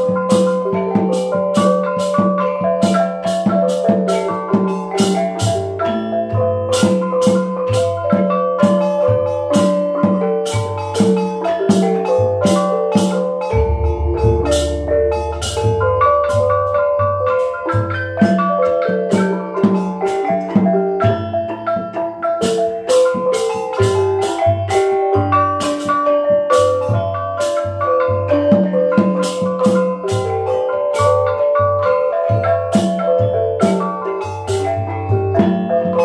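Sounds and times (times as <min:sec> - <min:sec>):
gamelan ensemble playing: 0:00.0 - 0:36.0
drum beat: 0:10.0 - 0:19.8
deep gong tone: 0:13.5 - 0:16.2
kettle gongs struck: 0:13.6 - 0:16.0.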